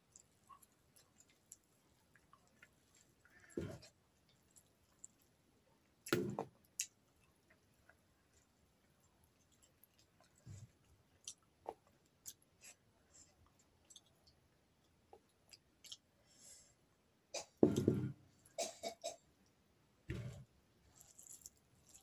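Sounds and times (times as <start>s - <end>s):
chewing and lip smacks: 6.0s - 12.8s, 13.4s - 16.1s.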